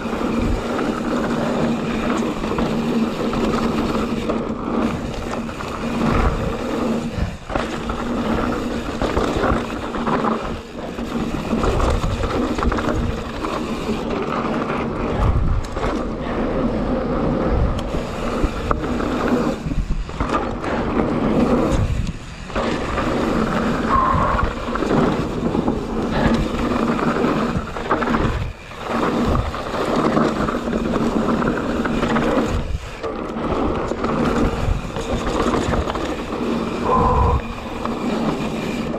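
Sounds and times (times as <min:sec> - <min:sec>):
bike rattling over bumps: 0:00.0 - 0:38.9
bike tyres crunching over gravel: 0:00.0 - 0:38.9.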